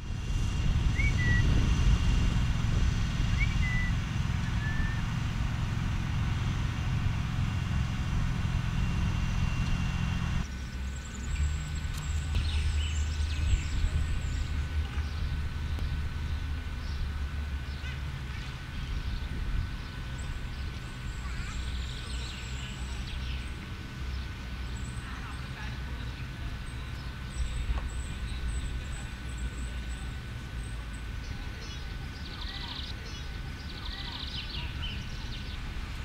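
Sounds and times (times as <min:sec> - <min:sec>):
electric train rumbling: 0:00.0 - 0:36.0
faint steady whine: 0:00.0 - 0:36.0
bird chirping: 0:00.9 - 0:01.5, 0:03.3 - 0:05.1.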